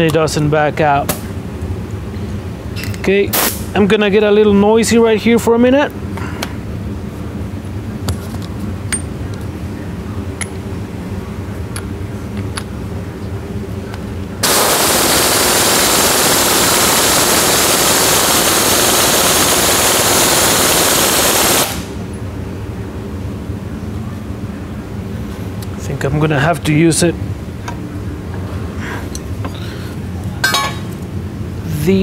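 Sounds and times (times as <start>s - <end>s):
impact wrench hammering: 30.4s - 30.9s.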